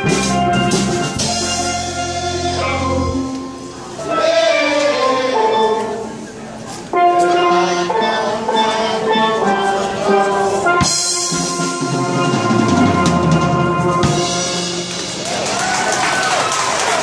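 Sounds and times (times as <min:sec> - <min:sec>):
drum roll: 0:00.0 - 0:02.2, 0:10.7 - 0:17.0
steel pan band playing: 0:00.0 - 0:17.0.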